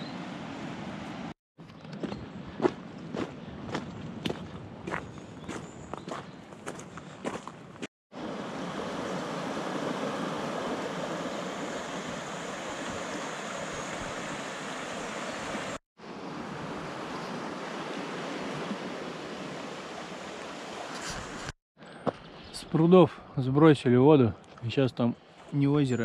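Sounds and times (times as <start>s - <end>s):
stream rushing over a drop: 8.2s - 15.8s, 16.4s - 21.5s.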